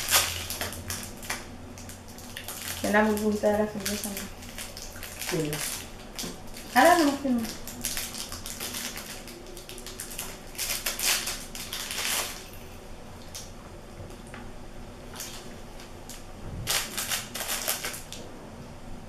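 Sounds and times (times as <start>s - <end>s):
plastic wrappers crinkling: 0.0s - 12.6s, 15.1s - 18.2s.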